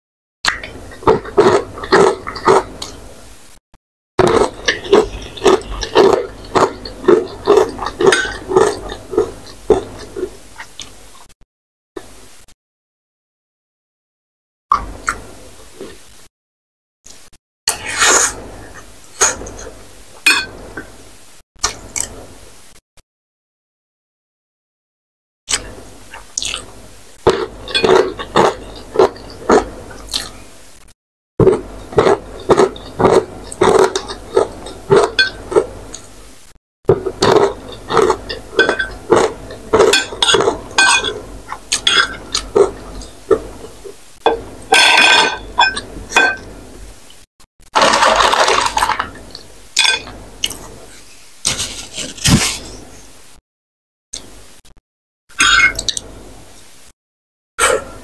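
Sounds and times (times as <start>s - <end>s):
person chewing and smacking: 0.5s - 3.0s, 4.2s - 11.0s, 25.5s - 26.7s, 27.3s - 30.4s, 31.4s - 36.1s, 36.9s - 43.8s
slurping noodles: 17.7s - 18.4s.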